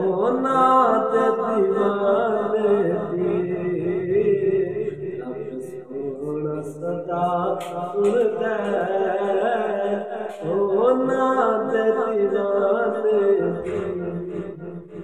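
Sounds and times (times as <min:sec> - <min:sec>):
man singing long wavering notes: 0:00.0 - 0:15.0.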